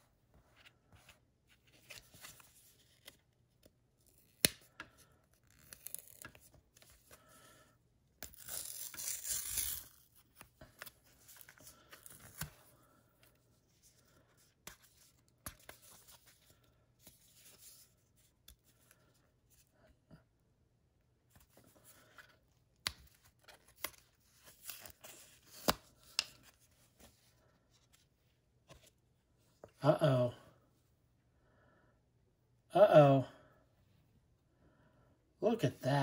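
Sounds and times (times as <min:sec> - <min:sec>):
card tearing: 0:05.4 - 0:07.1, 0:08.2 - 0:12.6, 0:23.1 - 0:26.4.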